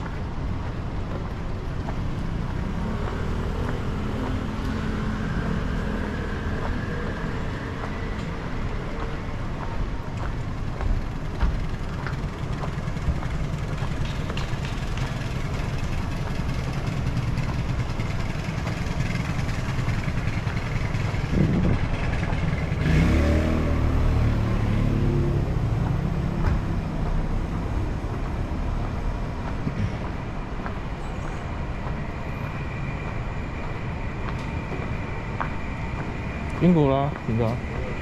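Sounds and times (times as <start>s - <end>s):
traffic rumble: 0.0s - 38.0s
vehicle engine passing close: 11.6s - 29.0s.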